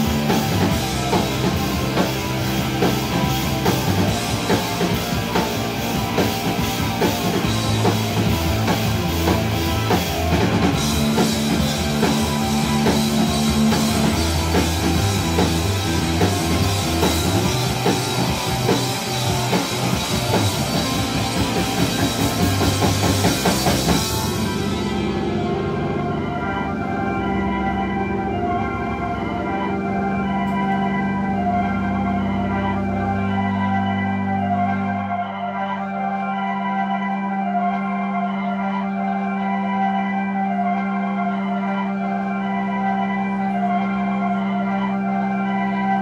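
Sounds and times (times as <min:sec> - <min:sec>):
drum kit: 0:00.0 - 0:34.9
bass guitar: 0:00.0 - 0:46.0
electric guitars: 0:00.0 - 0:46.0.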